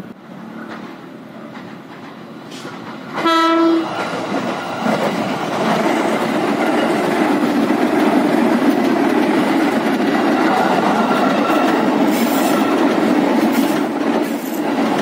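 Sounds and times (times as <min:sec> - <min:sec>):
train wheel and rail noise: 0:00.0 - 0:15.0
train horn blast: 0:03.2 - 0:03.9.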